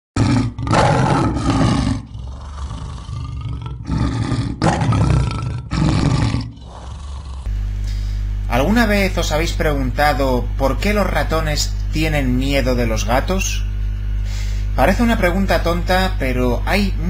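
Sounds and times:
lion roaring: 0:00.2 - 0:07.5.

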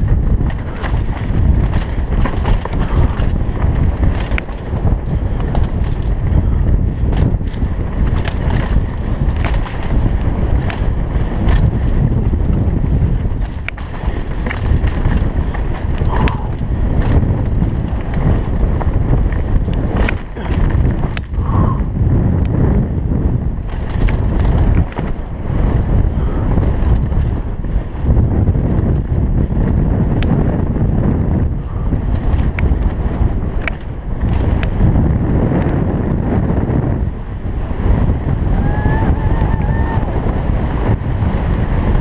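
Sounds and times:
bike clicking and knocking over rocks: 0:00.0 - 0:21.4, 0:23.6 - 0:30.6, 0:31.4 - 0:35.8
bike tyres on dirt: 0:00.0 - 0:42.0
wind rushing over microphone: 0:00.0 - 0:42.0.

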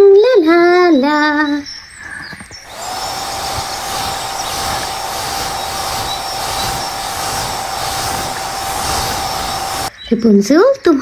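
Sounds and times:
hair dryer running: 0:02.7 - 0:09.9.

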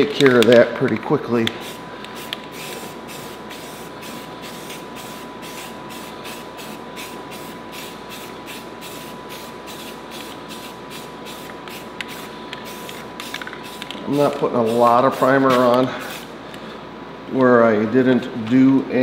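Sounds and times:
aerosol can spraying: 0:01.4 - 0:16.3.

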